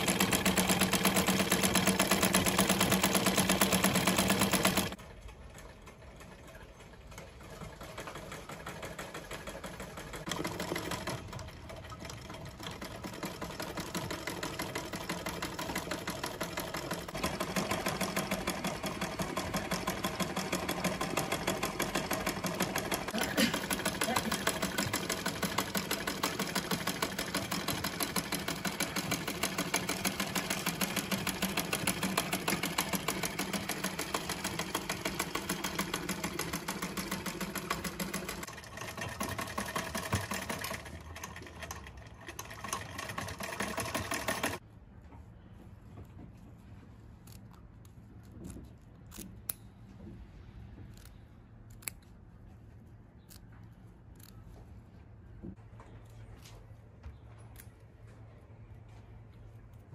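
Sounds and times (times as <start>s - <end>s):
treadle sewing machine stitching: 0.0s - 44.6s
small scissors snipping fabric: 50.9s - 52.2s.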